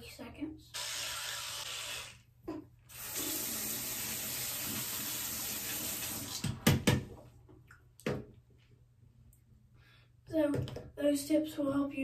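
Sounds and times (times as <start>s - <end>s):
tap running into a sink: 6.0s - 7.1s.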